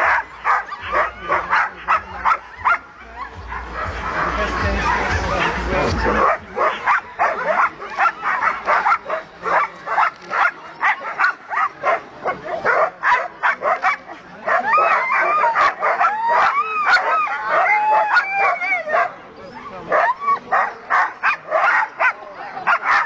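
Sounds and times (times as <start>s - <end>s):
sled dogs barking: 0.0s - 23.0s
dogs whining yelps: 12.7s - 23.0s.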